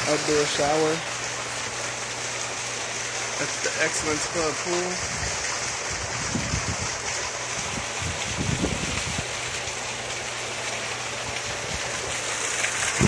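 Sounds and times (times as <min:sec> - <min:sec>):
water rushing into a pool: 0:00.0 - 0:13.0
wind buffeting microphone: 0:05.0 - 0:09.4.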